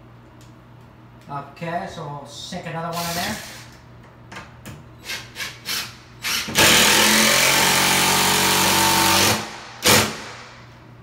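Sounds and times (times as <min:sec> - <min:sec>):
impact driver hammering: 0:06.3 - 0:10.6.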